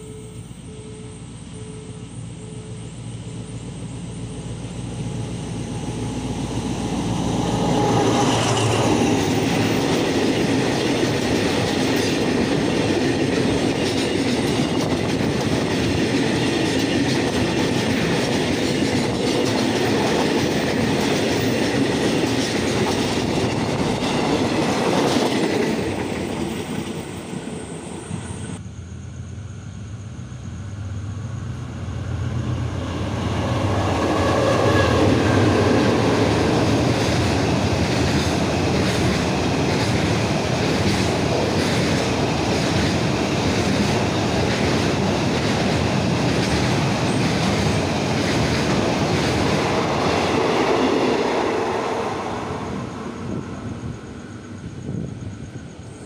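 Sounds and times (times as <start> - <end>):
low rumble of another train: 0.0 - 56.0
freight train rumbling and clattering: 3.5 - 56.0.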